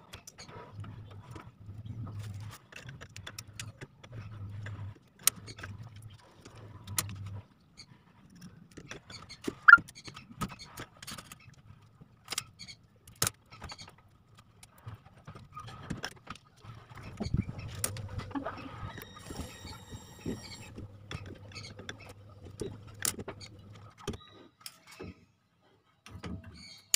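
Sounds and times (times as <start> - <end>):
short sharp squeak: 9.6 - 10.1
low hum: 17.0 - 24.0.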